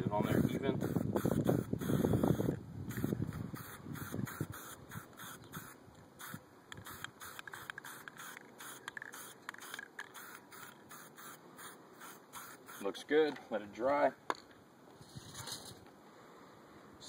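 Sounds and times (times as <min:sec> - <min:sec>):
spray can hissing in short bursts: 0:00.4 - 0:13.0.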